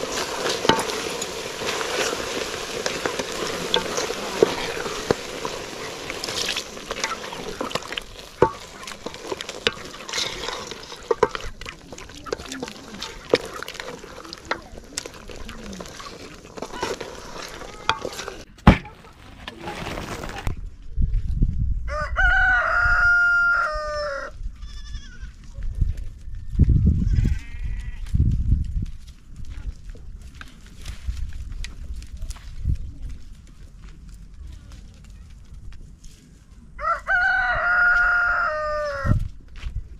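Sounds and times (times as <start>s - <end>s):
stew sizzling in a pot: 0.0s - 18.5s
water pouring: 0.0s - 18.5s
wooden spoon knocking pot: 2.5s - 18.9s
rooster crowing: 21.9s - 24.4s, 36.8s - 39.2s.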